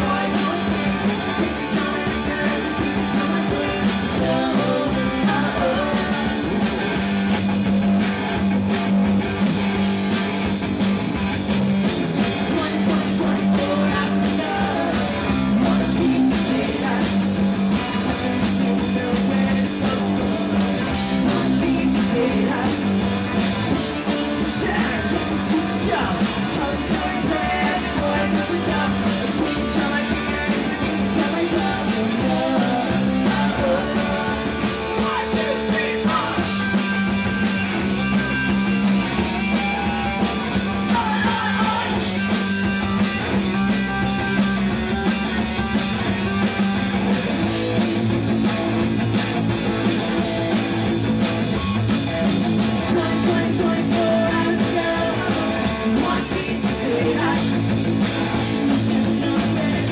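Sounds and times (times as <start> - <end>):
electric guitar: 0.0 - 59.9
live rock band playing: 0.0 - 59.9
woman singing: 40.9 - 42.0, 52.9 - 57.6.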